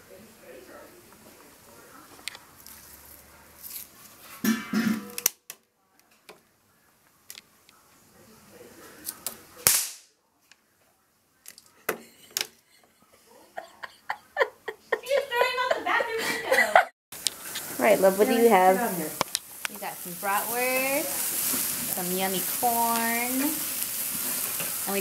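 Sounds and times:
crack: 9.0 - 10.6
sharp pops and clicks: 9.2 - 10.1, 19.2 - 19.8.

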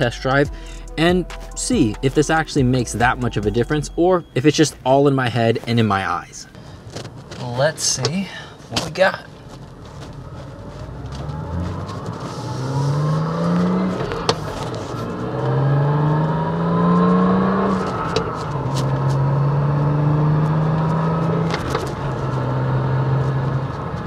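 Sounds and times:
car engine accelerating: 9.3 - 24.0.

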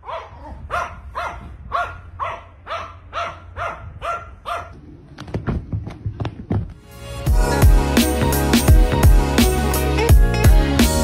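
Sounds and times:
small dog barking: 0.0 - 4.8.

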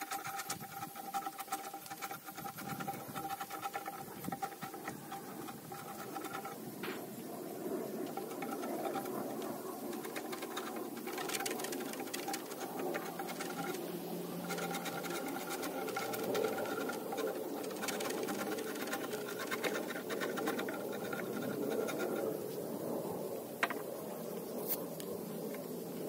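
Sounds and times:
tool scratching wood: 0.0 - 7.1, 8.0 - 22.4.

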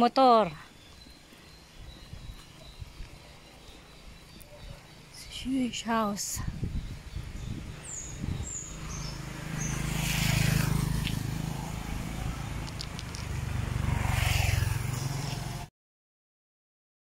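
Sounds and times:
vehicle engine running: 7.1 - 15.7.

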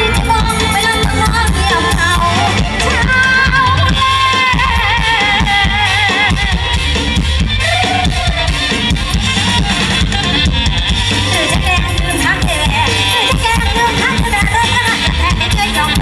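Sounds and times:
woman singing with vibrato: 0.0 - 6.8, 11.2 - 16.0
live band with drum kit: 0.0 - 16.0.

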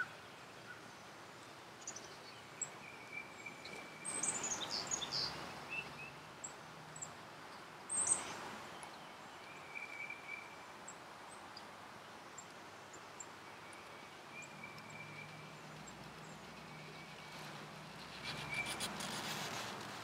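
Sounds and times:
small birds chirping: 0.0 - 20.0
crackly rustle: 11.5 - 20.0.

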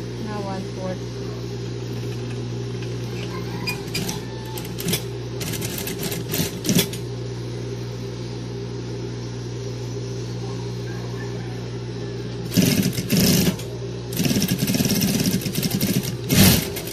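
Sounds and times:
sewing machine motor humming: 1.9 - 7.0, 12.4 - 16.9.

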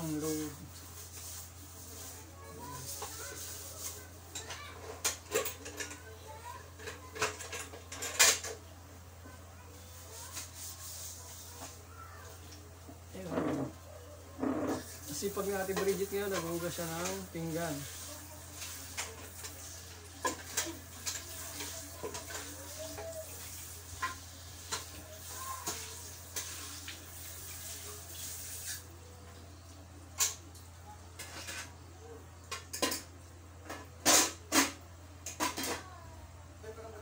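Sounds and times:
dishes and cutlery clinking: 2.8 - 8.6, 14.4 - 26.9, 31.2 - 31.8, 32.4 - 35.9.

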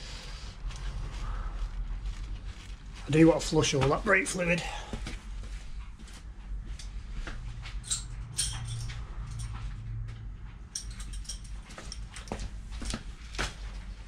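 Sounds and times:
low steady hum: 0.0 - 14.0
hand tools clicking and knocking: 7.8 - 9.6, 10.7 - 12.5.

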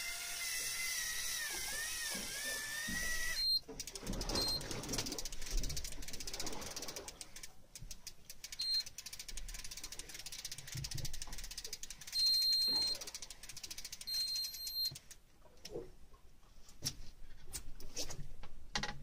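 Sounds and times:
rapid even clicking of reel: 0.0 - 15.1
electronic beeps: 3.4 - 3.6, 4.3 - 4.6, 12.2 - 13.0, 14.1 - 14.9.

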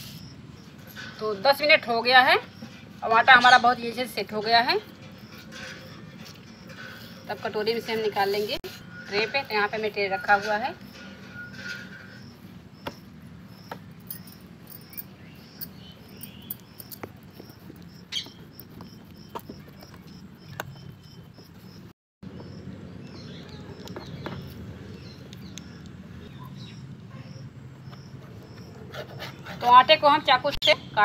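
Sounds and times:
bird chirping: 11.4 - 28.9.

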